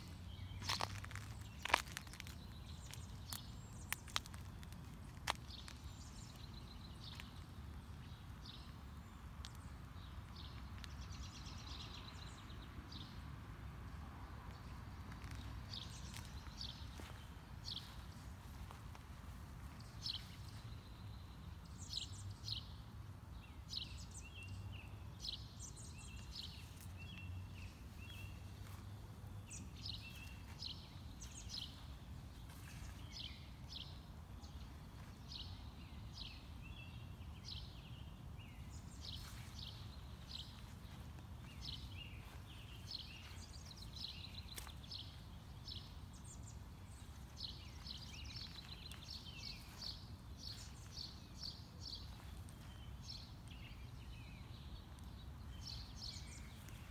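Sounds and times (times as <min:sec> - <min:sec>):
small birds chirping: 0:00.0 - 0:13.4, 0:14.4 - 0:56.9.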